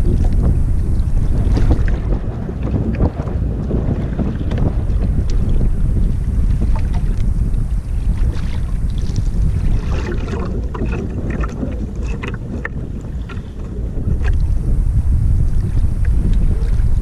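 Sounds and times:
water splashing against boat hull: 0.0s - 17.0s
wind rumbling on microphone: 0.0s - 17.0s.

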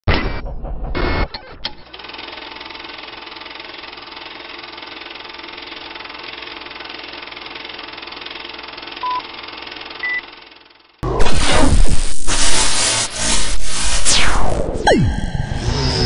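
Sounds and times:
film projector clatter: 1.8s - 11.0s.

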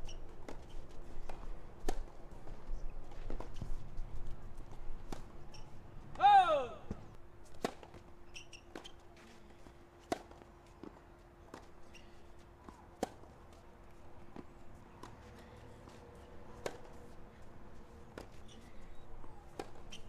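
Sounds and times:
tennis ball bounces and racket strikes: 10.0s - 11.8s, 12.6s - 13.4s, 14.3s - 17.2s, 19.5s - 20.0s.

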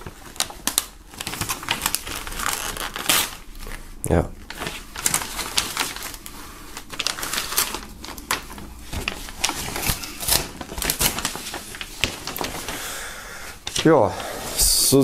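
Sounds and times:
paper poster crackling and tearing: 0.0s - 13.0s, 13.6s - 14.6s.

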